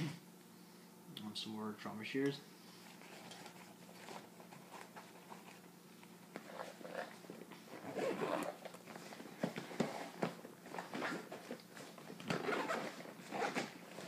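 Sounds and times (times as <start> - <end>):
rustling of fabric bag: 6.4 - 14.0.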